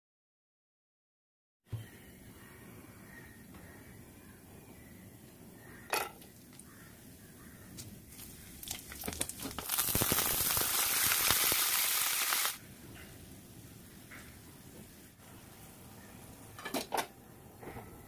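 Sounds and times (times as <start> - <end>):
spices sizzling in hot oil: 8.1 - 12.6.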